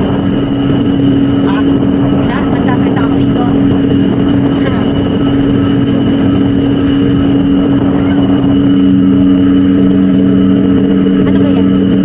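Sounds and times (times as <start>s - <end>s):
ferry engines droning: 0.0s - 12.0s.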